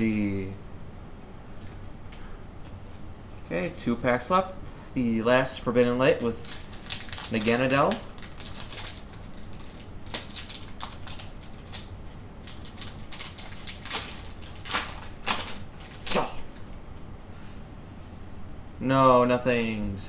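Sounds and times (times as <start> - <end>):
foil wrapper crinkling and tearing: 6.1 - 16.7.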